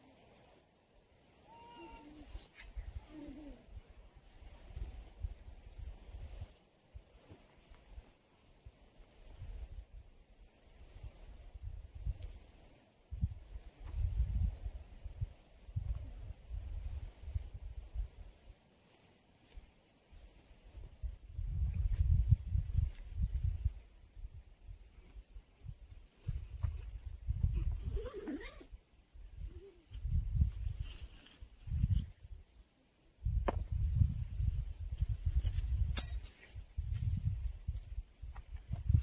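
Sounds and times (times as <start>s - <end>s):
high insect trill: 0.0s - 21.2s
wind rumble on microphone: 13.1s - 18.2s, 20.8s - 32.4s, 33.2s - 39.0s.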